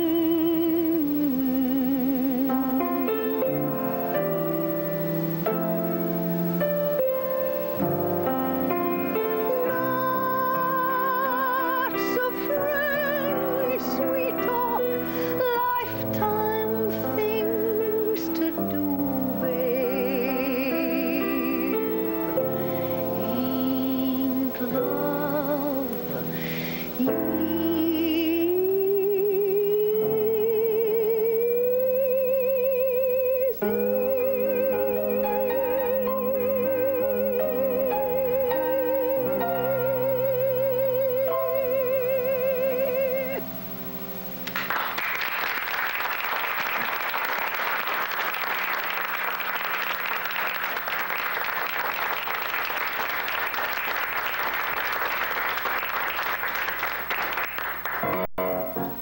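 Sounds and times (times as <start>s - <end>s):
woman singing with vibrato: 0.0s - 4.0s, 7.6s - 43.5s
sustained piano chords: 0.0s - 59.0s
applause: 44.4s - 58.3s.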